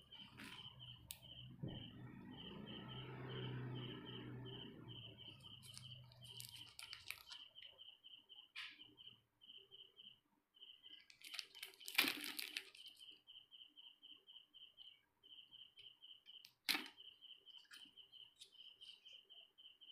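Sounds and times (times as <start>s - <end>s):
high chirp: 0.0s - 11.1s
candy wrapper crinkling: 5.6s - 7.4s, 11.1s - 13.0s.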